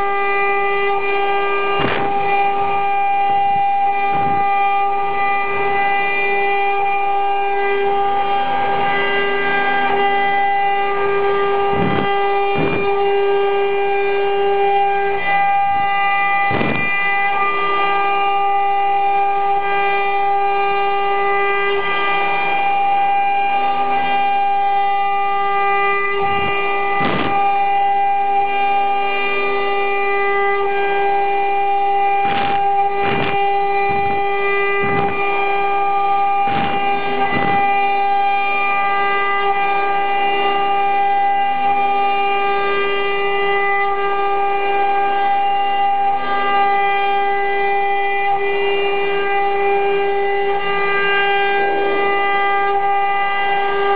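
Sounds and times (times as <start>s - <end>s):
wood router whine: 0.0s - 53.9s.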